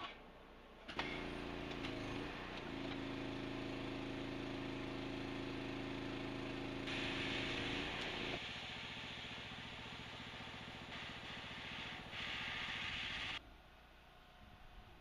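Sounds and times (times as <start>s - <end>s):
hydraulic hiss: 6.9s - 13.4s.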